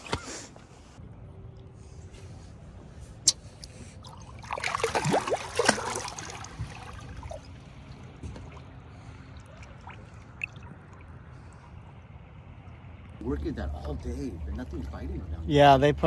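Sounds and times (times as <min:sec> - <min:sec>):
water gently lapping: 0:02.2 - 0:16.0
water splashing and gurgling: 0:04.0 - 0:15.4.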